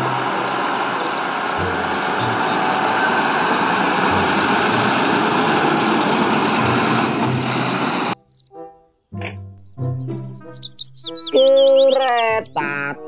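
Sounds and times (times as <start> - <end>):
truck engine running: 0.0 - 8.2.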